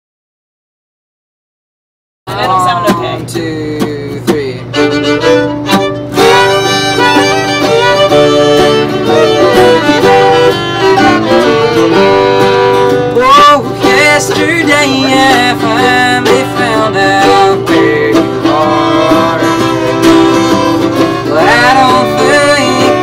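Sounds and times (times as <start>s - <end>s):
young man singing: 2.3s - 5.2s, 6.2s - 23.0s
bluegrass band playing: 4.6s - 23.0s.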